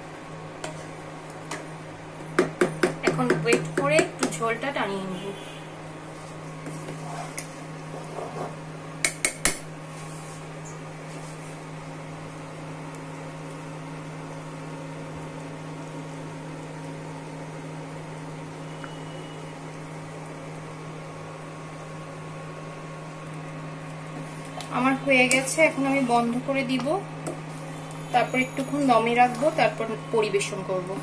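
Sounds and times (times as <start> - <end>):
electric cooker humming: 0.0 - 31.0
spoon stirring in pot: 0.6 - 1.7.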